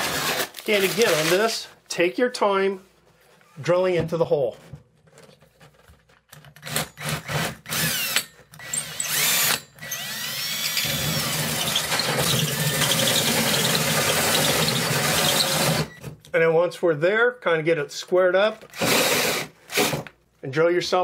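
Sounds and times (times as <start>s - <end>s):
cordless drill cutting fiberglass: 0.0s - 0.5s, 6.6s - 16.0s, 18.7s - 20.1s.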